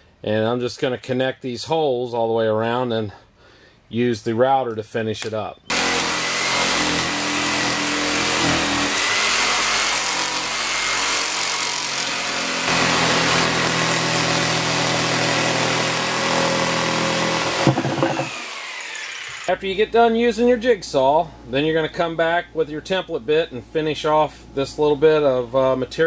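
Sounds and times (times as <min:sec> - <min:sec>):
jigsaw cutting through table top: 0:05.7 - 0:19.5.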